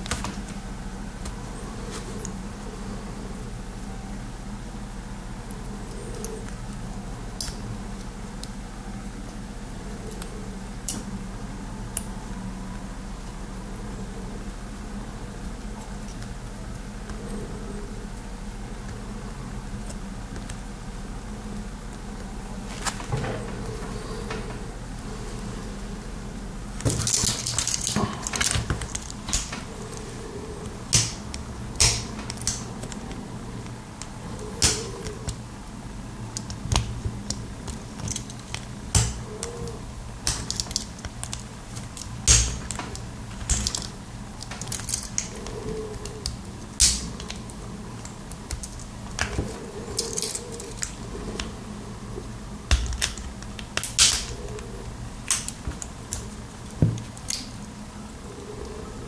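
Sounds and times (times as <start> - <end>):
low steady hum: 0.0 - 59.0
small plastic parts clicking: 36.3 - 51.5.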